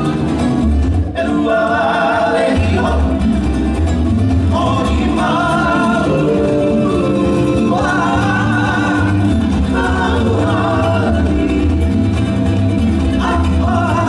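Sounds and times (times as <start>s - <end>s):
person singing: 4.5s - 12.3s, 13.0s - 14.0s.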